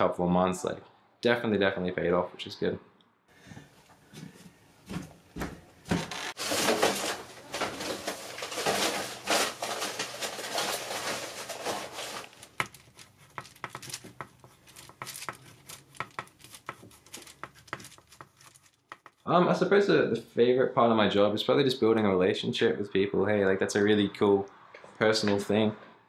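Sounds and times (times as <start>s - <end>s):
rustling and handling noise: 3.6s - 19.3s
pen scratching on paper: 12.6s - 19.2s.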